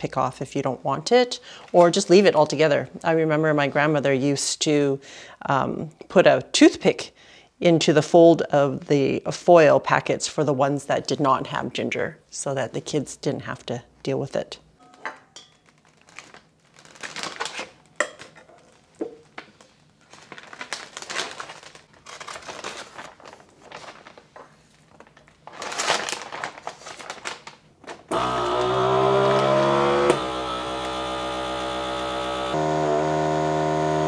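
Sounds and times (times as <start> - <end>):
plastic bag crinkling: 15.6 - 28.0
vacuum sealer click: 28.1 - 34.0
vacuum sealer pump humming: 28.1 - 34.0.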